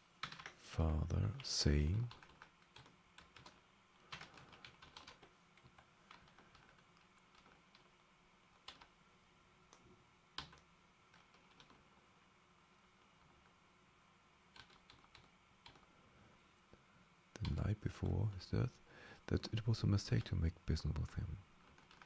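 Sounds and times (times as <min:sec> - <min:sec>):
faint keyboard typing: 0:00.2 - 0:09.0, 0:09.7 - 0:11.9, 0:12.9 - 0:13.6, 0:14.5 - 0:16.0, 0:17.3 - 0:18.5, 0:21.6 - 0:22.0.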